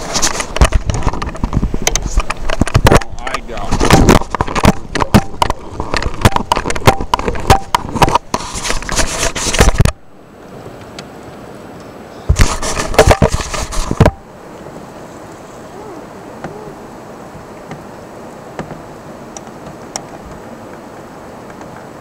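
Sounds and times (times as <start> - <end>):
clatter of knocks and rustles: 0.0 - 10.0, 12.3 - 14.2.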